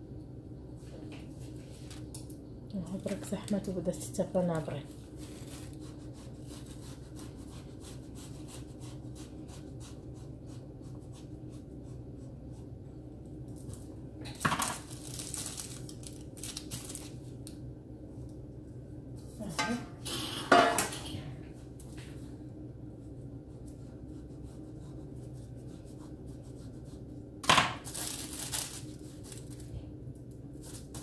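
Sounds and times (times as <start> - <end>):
pastry sheets rustling: 2.9 - 12.7, 13.6 - 17.4, 27.8 - 29.9
low hum: 10.2 - 27.5.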